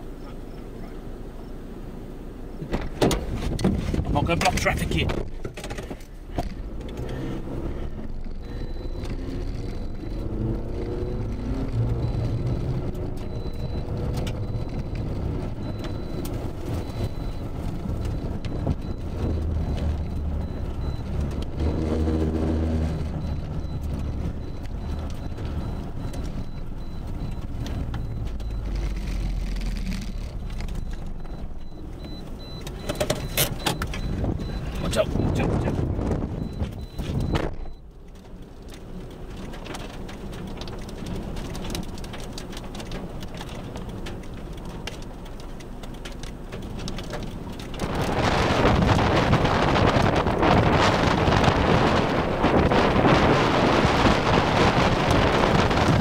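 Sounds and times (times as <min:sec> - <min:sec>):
car engine: 0:00.0 - 0:56.0
tyres on gravel road: 0:00.0 - 0:56.0.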